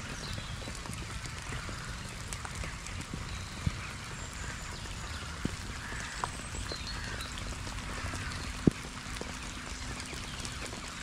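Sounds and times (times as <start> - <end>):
distant waterbirds calling: 0.0 - 11.0
sharp water drips: 0.0 - 11.0.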